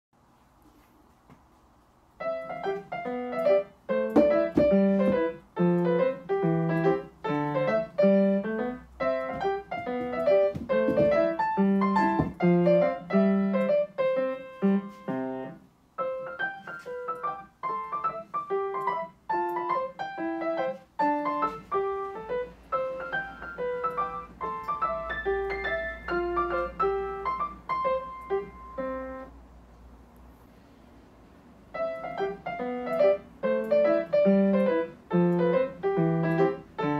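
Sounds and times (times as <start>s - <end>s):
piano melody: 2.2s - 29.6s, 31.6s - 36.9s.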